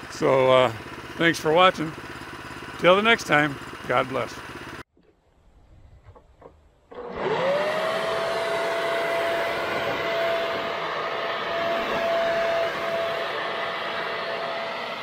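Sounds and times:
leaf blower motor whine: 0.0 - 4.8, 6.9 - 15.0.

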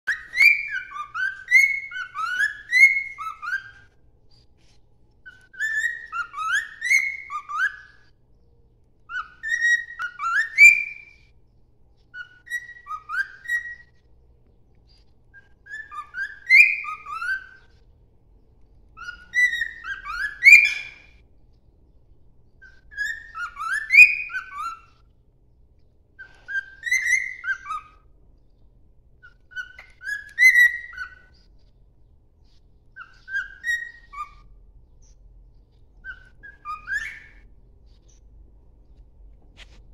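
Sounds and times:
cockatiel whistling: 0.1 - 4.4, 5.2 - 8.1, 9.1 - 11.3, 12.1 - 14.0, 14.9 - 17.8, 18.9 - 21.2, 22.6 - 25.0, 26.2 - 28.1, 29.2 - 31.5, 32.5 - 35.2, 36.0 - 38.2.

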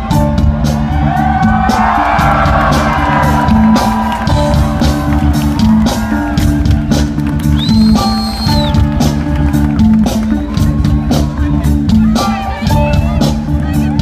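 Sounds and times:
rock band music: 0.0 - 14.0
crowd shouting and whooping: 0.8 - 9.1
high whistle: 7.6 - 8.8.

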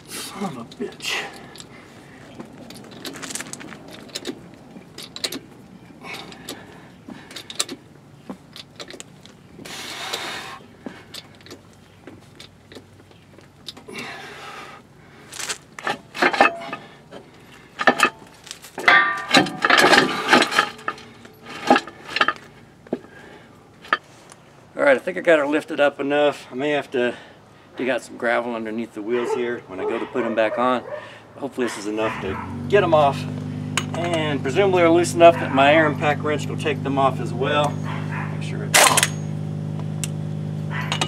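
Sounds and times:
metal jack clicking and clanking: 2.6 - 5.5, 7.3 - 7.8, 15.8 - 16.9, 17.8 - 22.5, 33.7 - 34.4, 38.7 - 39.3, 40.8 - 41.0.

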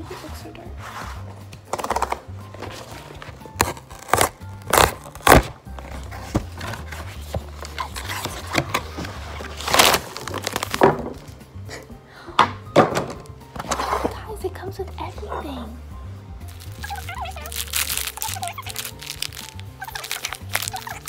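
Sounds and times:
cardboard and plastic rustling: 0.0 - 11.4, 16.5 - 21.0
background music with bass line: 0.0 - 21.0.

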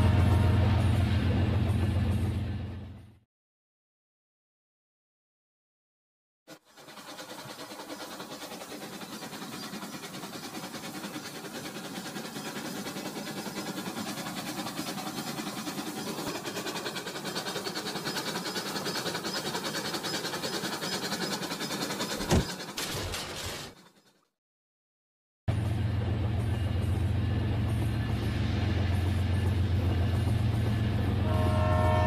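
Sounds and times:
toy train cars derailing clack: 15.7 - 24.2.

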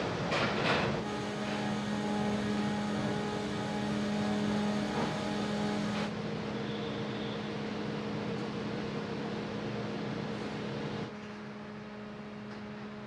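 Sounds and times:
engine drone: 0.9 - 6.2.

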